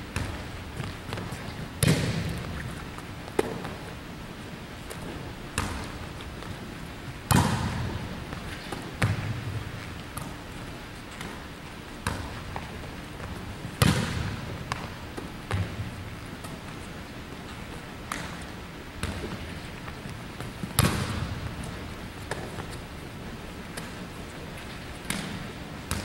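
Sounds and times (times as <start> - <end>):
volleyball slapping gym floor: 0.1 - 3.9, 4.8 - 6.6, 7.2 - 16.8, 18.0 - 22.8, 25.0 - 26.0.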